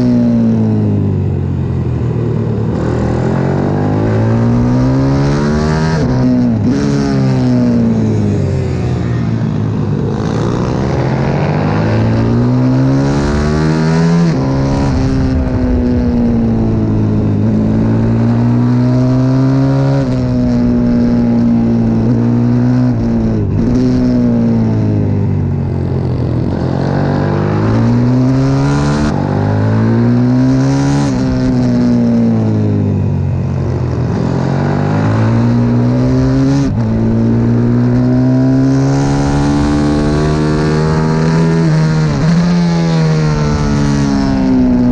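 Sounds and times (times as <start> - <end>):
motorbike engine revving: 0.0 - 44.9.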